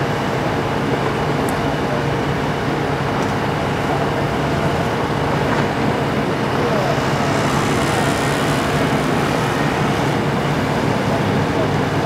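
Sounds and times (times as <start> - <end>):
heavy engine droning: 2.8 - 12.0.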